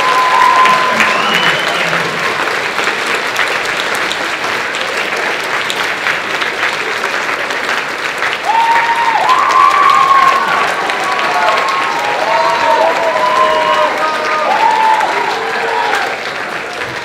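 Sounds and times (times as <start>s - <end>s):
long held cheer: 0.0s - 2.6s, 8.3s - 17.0s
audience applauding: 0.0s - 17.0s.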